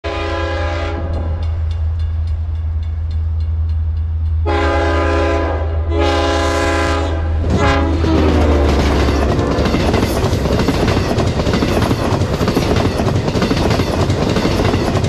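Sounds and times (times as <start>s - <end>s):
train horn blasts: 0.0s - 1.6s, 4.4s - 9.9s.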